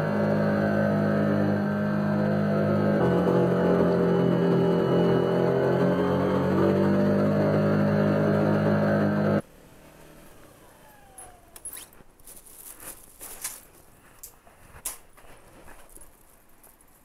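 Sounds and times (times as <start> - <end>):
loud drone of held tones: 0.0 - 9.4
sharp clicks and rustles: 11.1 - 17.0.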